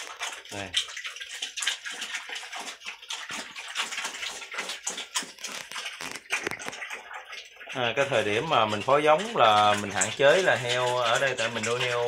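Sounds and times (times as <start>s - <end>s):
boars slurping and chomping: 0.0s - 12.0s.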